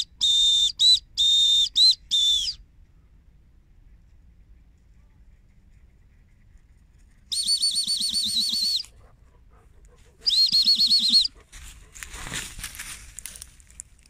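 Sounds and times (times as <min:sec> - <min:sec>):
trilled whistle blasts: 0:00.0 - 0:02.6, 0:07.3 - 0:08.9, 0:10.2 - 0:11.3
soft rustling: 0:11.4 - 0:14.0.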